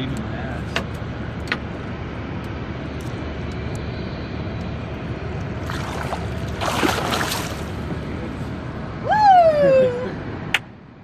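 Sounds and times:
fish splashing in water: 5.6s - 7.9s.

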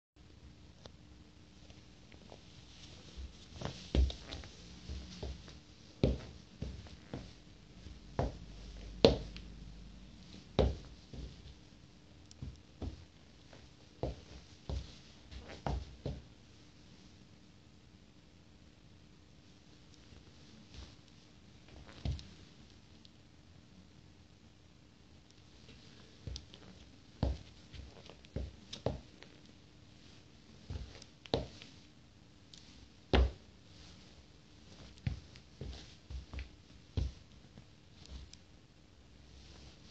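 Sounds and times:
sneakers stepping on wooden floor: 3.1s - 9.4s, 10.6s - 11.6s, 27.2s - 29.0s.

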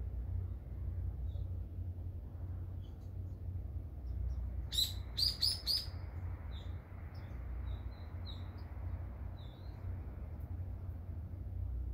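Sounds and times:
songbirds chirping: 0.0s - 11.9s
steady low rumble: 0.0s - 11.9s.

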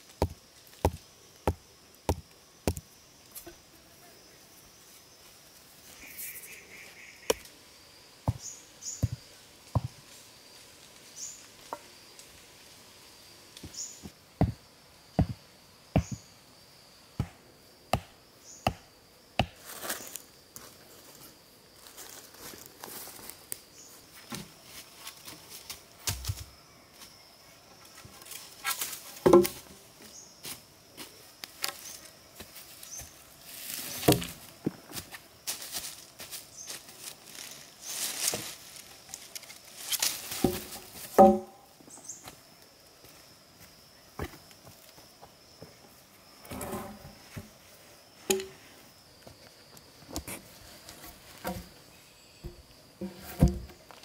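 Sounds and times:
high insect drone: 0.0s - 54.0s
thuds and scraping: 8.3s - 10.0s, 28.6s - 29.8s, 40.2s - 41.6s, 46.4s - 47.5s, 50.1s - 51.8s, 52.4s - 54.0s.

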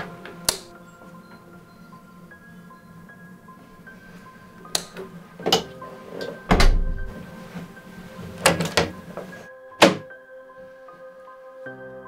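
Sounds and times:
soft background music: 0.0s - 12.0s
door knocks and thuds: 6.5s - 7.1s.

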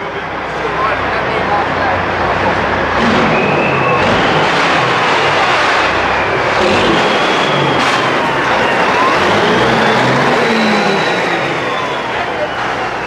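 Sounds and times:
diesel truck engine running: 0.0s - 13.0s
high whistle: 3.0s - 13.0s.

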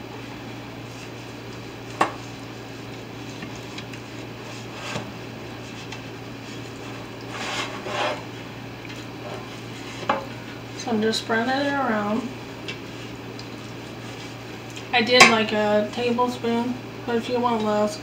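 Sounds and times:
utensil scraping metal baking pan: 7.3s - 8.3s.

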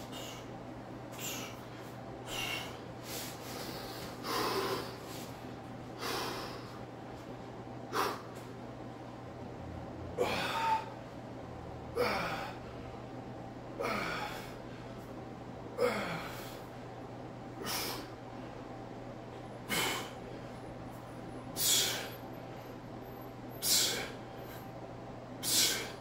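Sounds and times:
man breathing forcefully: 0.0s - 0.5s, 1.1s - 5.4s, 6.0s - 6.9s, 7.9s - 8.4s, 13.8s - 15.0s, 15.8s - 16.8s, 17.6s - 18.4s, 19.6s - 20.6s, 21.5s - 22.2s, 23.6s - 24.7s, 25.4s - 26.0s
low steady hum: 0.0s - 26.0s.

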